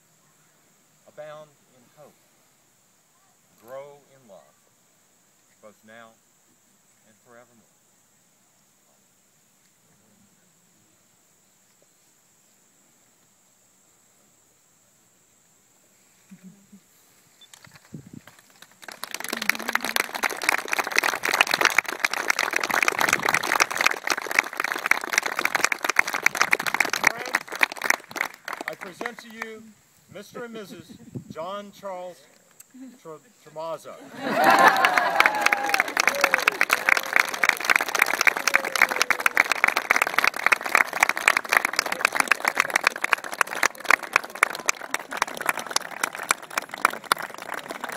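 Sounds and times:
close sharp claps: 17.5 - 29.5, 34.4 - 47.9
small crowd applauding: 17.6 - 29.5, 34.2 - 47.9.

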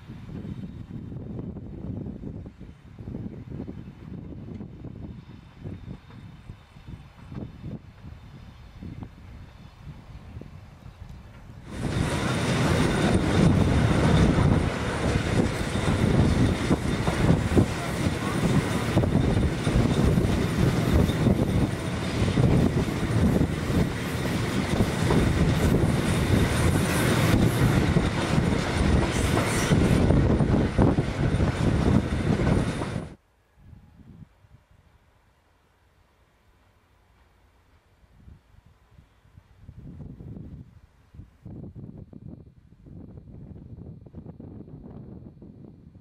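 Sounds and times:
electric train wheels rumbling: 0.0 - 33.2
thin high train whine: 0.0 - 46.0.

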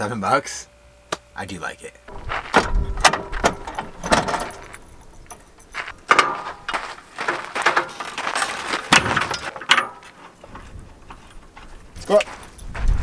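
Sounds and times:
metal hardware clanking: 2.1 - 10.3.

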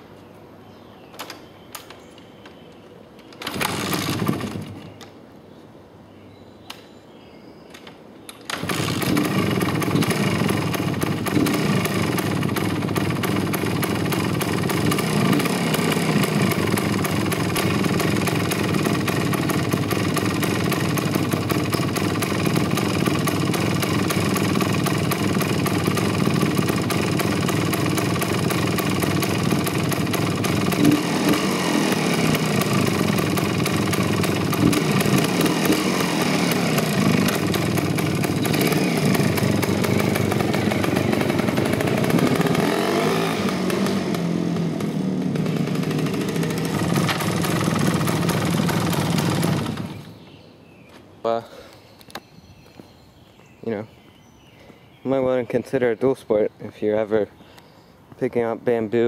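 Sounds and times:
motorcycle engine idling and revving: 3.5 - 5.0, 8.5 - 50.2.

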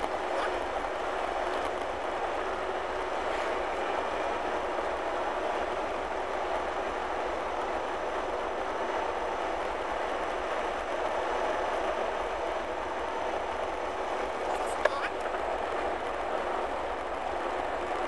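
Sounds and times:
vehicle engine and tyre noise: 0.0 - 18.0.

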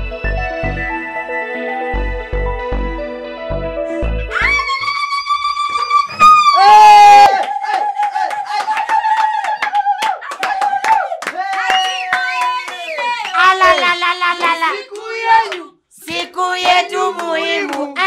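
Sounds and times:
hand clapping: 7.3 - 18.0.

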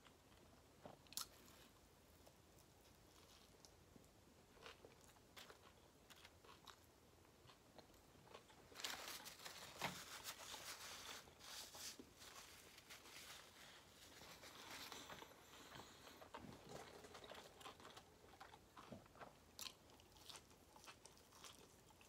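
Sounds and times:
chewing: 14.6 - 22.0.

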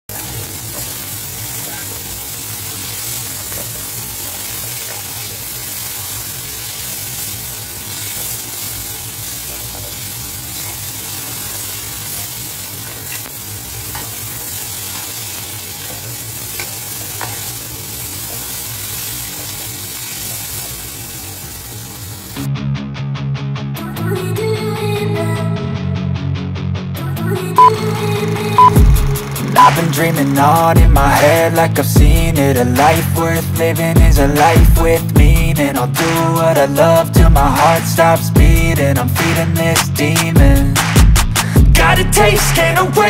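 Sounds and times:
stir-fry sizzling in a wok: 0.1 - 22.5.

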